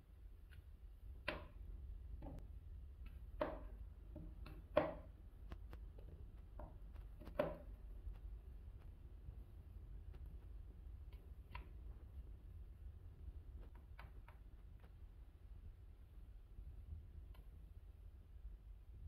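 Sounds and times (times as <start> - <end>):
low steady hum: 0.0 - 19.0
knife cutting apple: 3.0 - 5.7, 6.6 - 7.8.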